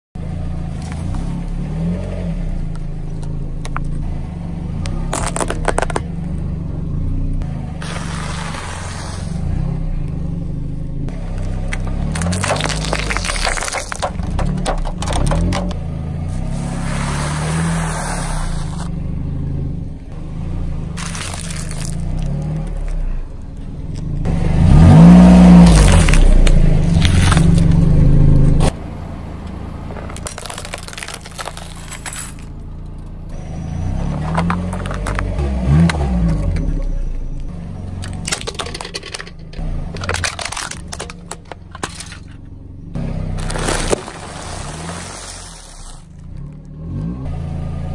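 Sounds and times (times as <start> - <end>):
car engine and tyres on asphalt: 0.0 - 47.9
tyre squashing plastic tubes: 5.1 - 6.1, 11.4 - 15.8, 21.0 - 23.0, 30.0 - 32.5, 34.1 - 36.7, 38.0 - 42.4, 43.4 - 46.6.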